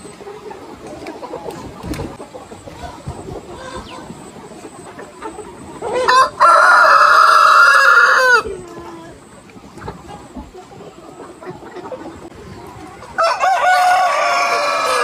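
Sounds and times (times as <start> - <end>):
chickens clucking quietly: 0.0 - 15.0
rooster crowing: 6.0 - 8.5, 13.2 - 15.0.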